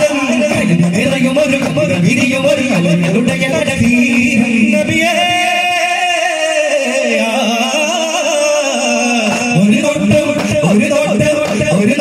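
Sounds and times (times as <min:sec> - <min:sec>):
light drumming: 0:00.0 - 0:05.8, 0:09.3 - 0:12.0
person singing over loudspeakers: 0:00.0 - 0:12.0.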